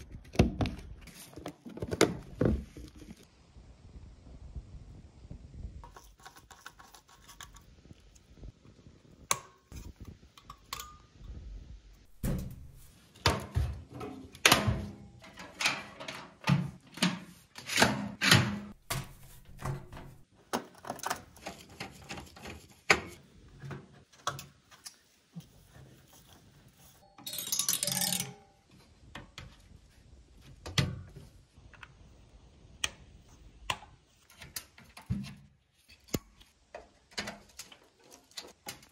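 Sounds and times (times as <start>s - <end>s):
handling computer parts: 12.1s - 24.8s.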